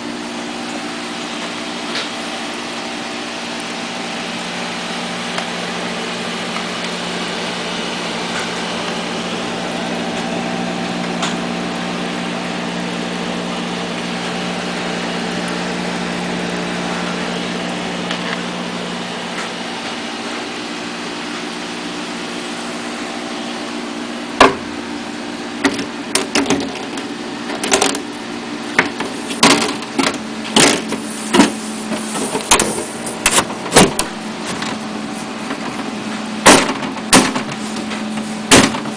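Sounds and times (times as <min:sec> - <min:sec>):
computer fans and pump humming: 0:00.0 - 0:38.9
sharp knocks and clunks: 0:24.4 - 0:24.7, 0:28.8 - 0:34.8, 0:36.4 - 0:38.9.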